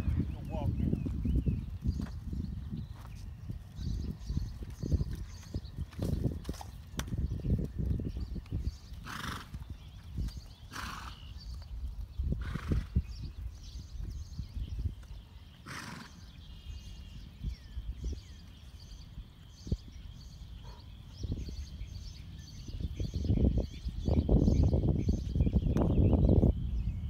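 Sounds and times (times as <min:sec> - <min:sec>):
bird chirps: 0:00.0 - 0:27.0
horse snorting: 0:09.0 - 0:09.6, 0:10.7 - 0:11.3, 0:12.4 - 0:13.0, 0:15.6 - 0:16.3.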